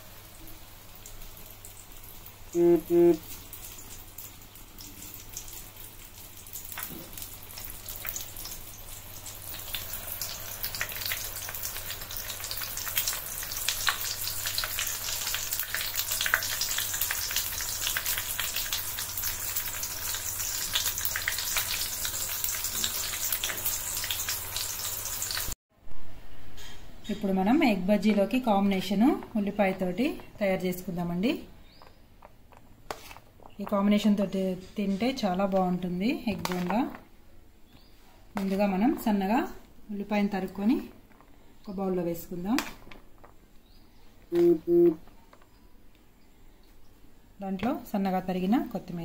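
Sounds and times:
eggs deep-frying in hot oil: 0:00.0 - 0:25.6.

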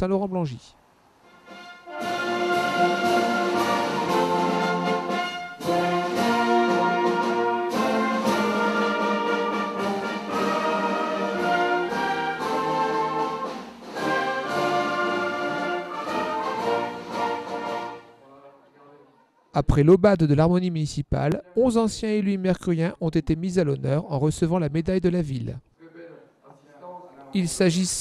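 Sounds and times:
wind band playing: 0:01.2 - 0:18.2.

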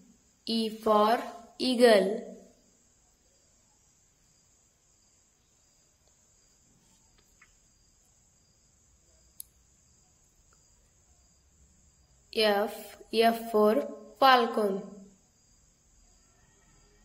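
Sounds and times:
faint high hiss: 0:00.0 - 0:13.2
faint clicks: 0:07.0 - 0:07.6, 0:09.3 - 0:09.6.

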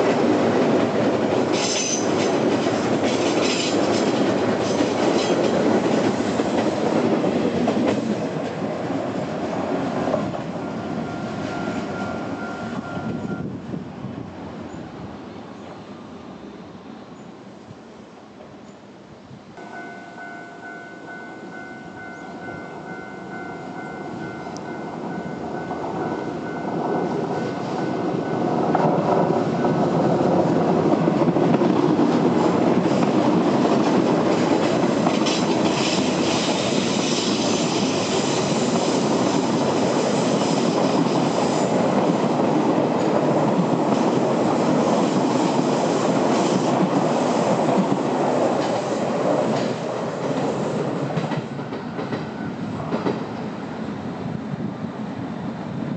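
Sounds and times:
train wheels clattering over rails: 0:00.0 - 0:13.3, 0:26.7 - 0:53.8.

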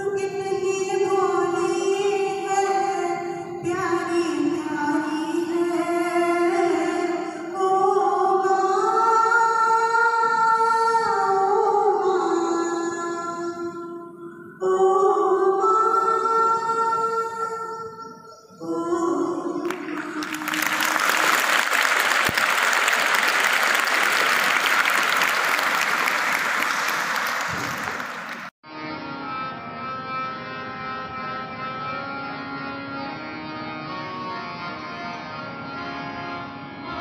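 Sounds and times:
singing with music: 0:00.0 - 0:21.6
audience clapping: 0:19.6 - 0:28.5
music with held notes: 0:28.6 - 0:37.0.

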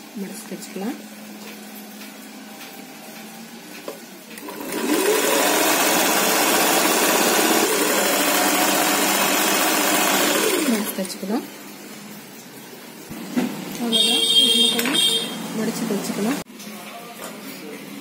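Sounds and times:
sewing machine stitching: 0:04.4 - 0:11.1.

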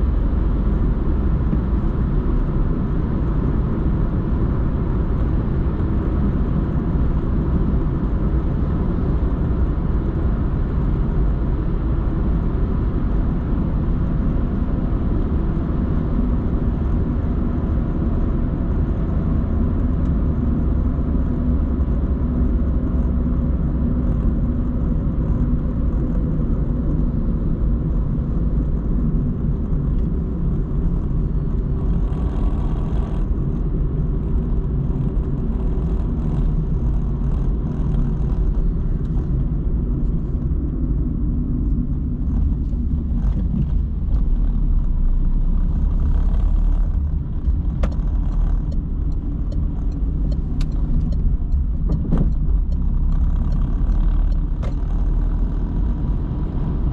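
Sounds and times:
car interior rumble: 0:00.0 - 0:56.9.

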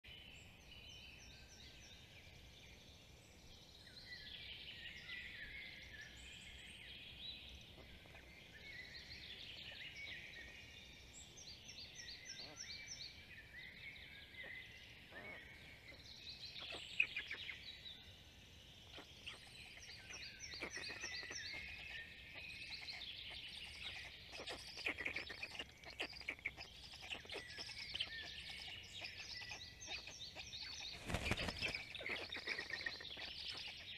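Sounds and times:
songbirds singing and calling: 0:00.0 - 0:33.9
bird trilling: 0:22.8 - 0:33.8.

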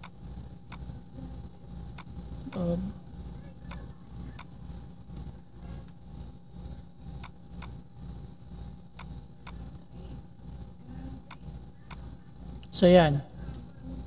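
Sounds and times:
computer mouse clicking: 0:00.0 - 0:00.9, 0:03.7 - 0:04.5, 0:07.2 - 0:07.8, 0:08.9 - 0:09.6, 0:11.2 - 0:12.7
low steady hum: 0:00.0 - 0:14.0.

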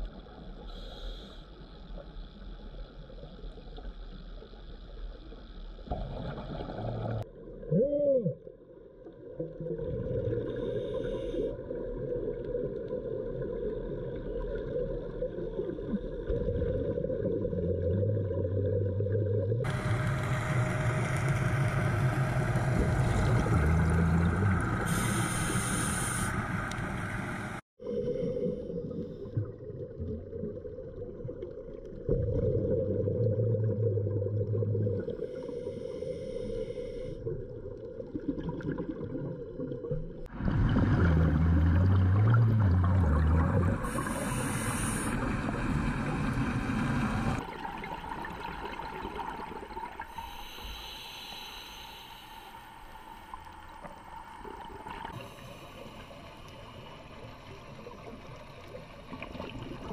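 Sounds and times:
underwater low rumble: 0:08.4 - 0:59.9
bubbling hissing rush: 0:23.6 - 0:27.6, 0:43.7 - 0:47.4.

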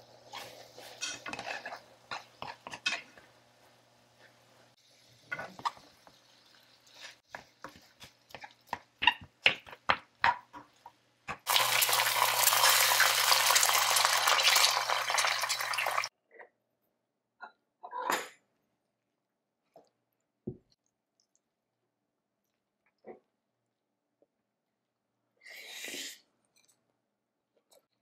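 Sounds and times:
spatula scraping frying pan: 0:00.3 - 0:03.3.

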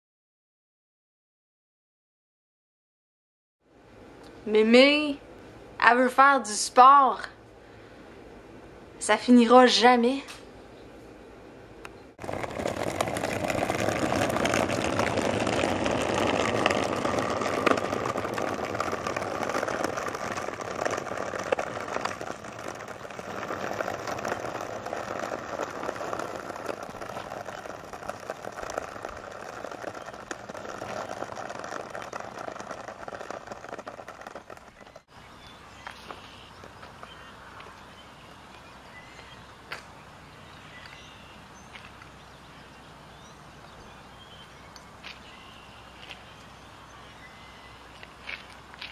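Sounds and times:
cart rattling on asphalt: 0:12.2 - 0:38.3, 0:43.9 - 0:48.9.

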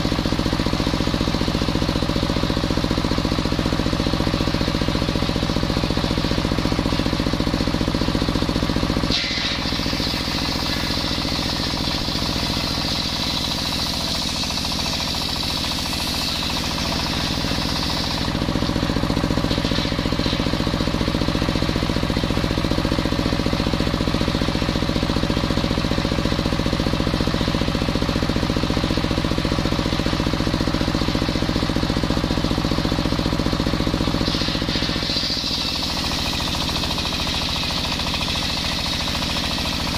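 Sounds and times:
sawmill engine drone: 0:00.0 - 0:39.9
saw blade cutting wood: 0:08.8 - 0:21.1, 0:34.0 - 0:39.9.

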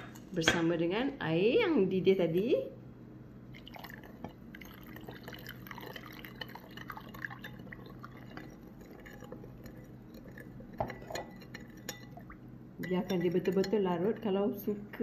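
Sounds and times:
hot water pouring into glass bowl: 0:03.5 - 0:13.8
spoon clinking on bowl: 0:06.4 - 0:14.2
metal spoon scraping glass: 0:08.9 - 0:12.2.

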